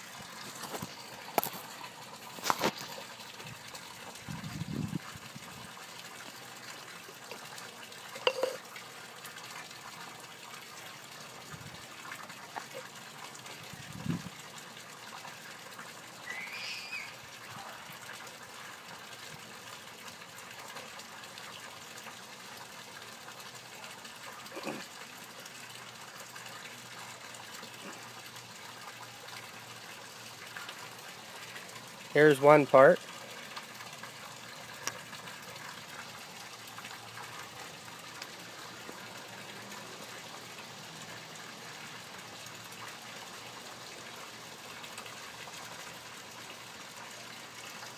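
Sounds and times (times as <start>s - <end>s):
pipe fittings knocking: 8.2s - 8.6s.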